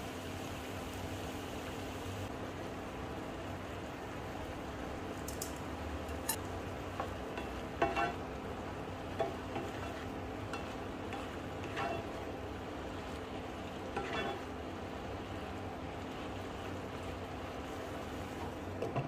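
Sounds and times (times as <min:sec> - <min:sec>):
food sizzling hiss: 0:00.0 - 0:18.7
spatula scraping skillet: 0:06.1 - 0:08.4, 0:09.0 - 0:14.6.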